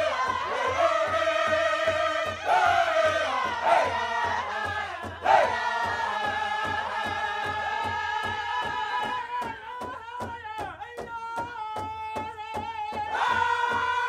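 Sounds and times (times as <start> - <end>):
big drum steady beat: 0.0 - 9.8
drum group singing: 0.0 - 14.0.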